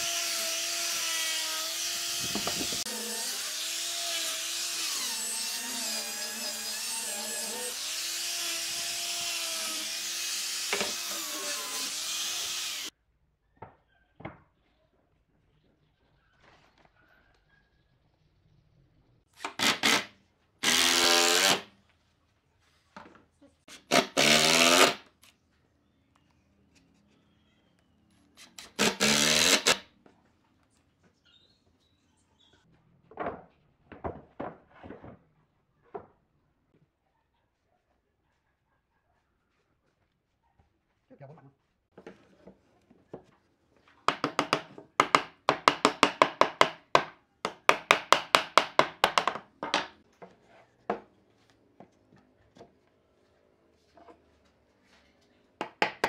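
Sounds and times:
power tool motor whirring: 0.0 - 12.9, 20.6 - 21.6
rapid strikes on wood: 44.1 - 49.9.

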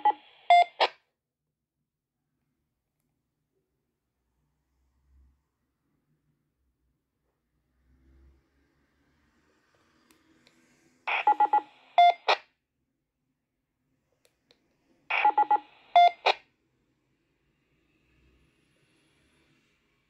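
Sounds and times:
handheld radio beeps: 0.0 - 0.9, 11.1 - 12.4, 15.1 - 16.4.

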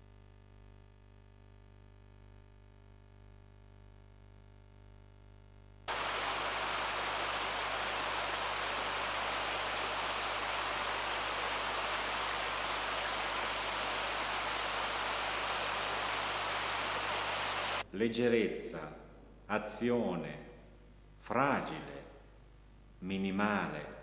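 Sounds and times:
faint hum: 0.0 - 24.0
water rushing in a stream: 5.9 - 17.8.

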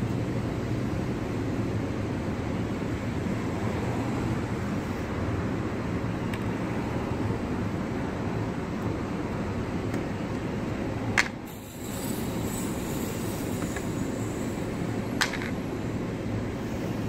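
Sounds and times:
street traffic: 0.0 - 17.0
bucket lid clicks on paving: 11.2 - 11.4, 15.2 - 15.5.

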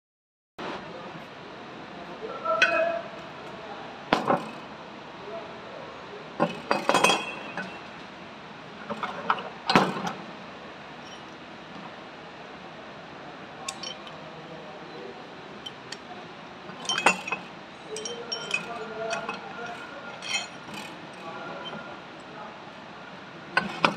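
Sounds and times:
metal parts clinking: 13.7 - 14.2, 16.7 - 21.8.

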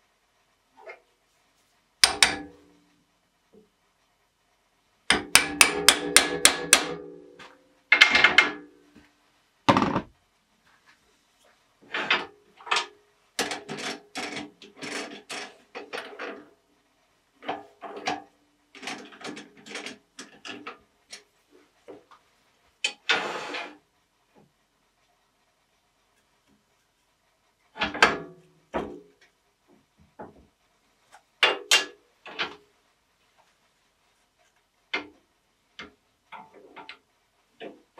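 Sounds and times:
hammer striking steel: 5.1 - 7.2.

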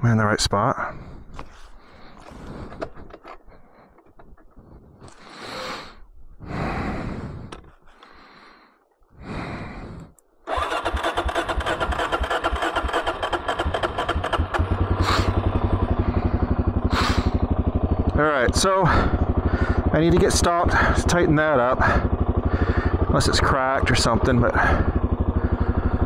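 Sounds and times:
motorcycle engine idling: 9.2 - 26.0
electric starter cranking: 10.5 - 18.2.

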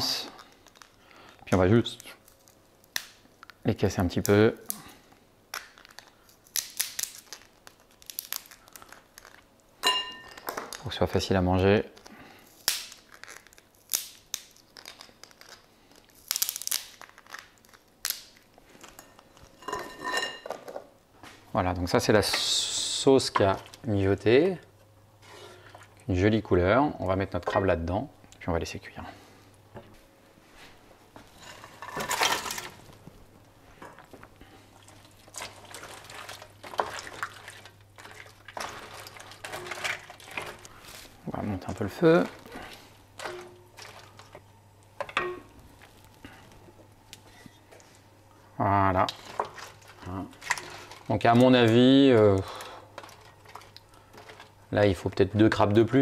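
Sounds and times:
crab shell cracking and crunching: 0.3 - 10.9, 11.9 - 19.6, 33.9 - 41.2, 42.2 - 47.3, 49.0 - 54.7
wooden spoon stirring thick sauce: 34.1 - 40.9, 42.4 - 44.4, 49.0 - 55.9.

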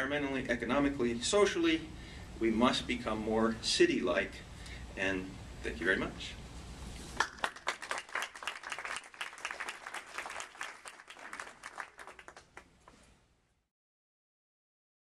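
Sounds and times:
audience applauding: 7.2 - 12.7.

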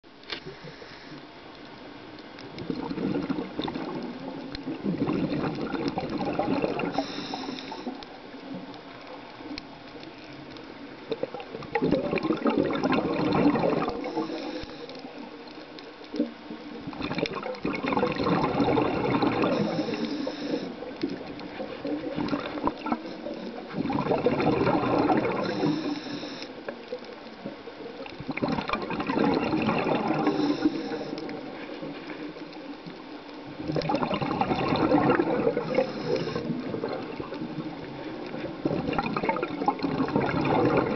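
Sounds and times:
diver inhaling: 0.4 - 1.3, 6.9 - 8.0, 14.0 - 15.2, 19.5 - 20.8, 25.4 - 26.6, 30.1 - 31.3, 35.5 - 36.7
diver's exhaled bubbles rushing: 2.6 - 7.1, 11.1 - 14.4, 16.8 - 20.0, 20.8 - 25.9, 28.1 - 31.9, 33.5 - 40.9.

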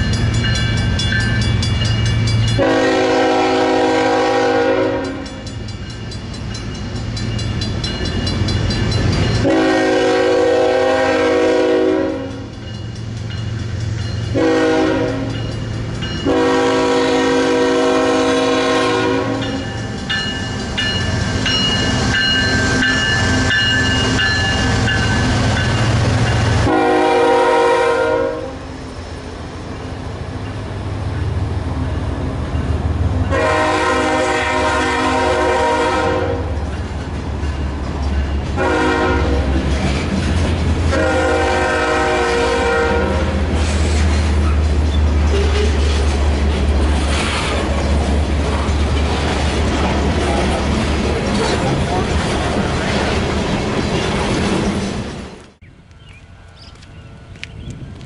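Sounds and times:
locomotive engines rumbling: 0.0 - 58.0
locomotive air horn blasts: 2.6 - 5.4, 9.4 - 12.5, 14.3 - 15.4, 16.2 - 19.7, 26.6 - 28.8, 33.3 - 36.6, 38.6 - 39.6, 40.9 - 43.5.

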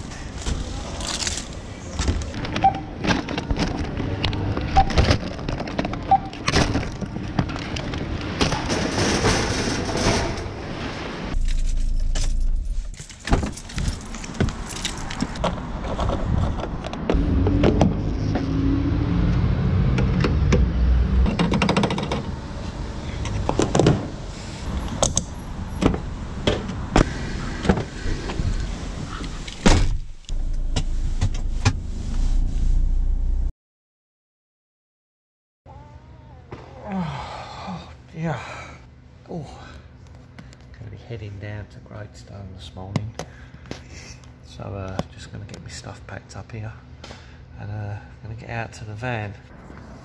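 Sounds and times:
van door opening and shutting: 11.3 - 18.0, 29.4 - 31.9.

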